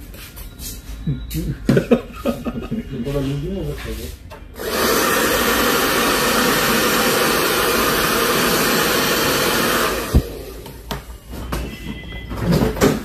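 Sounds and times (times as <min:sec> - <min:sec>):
electric air blower rushing: 0:04.6 - 0:10.6.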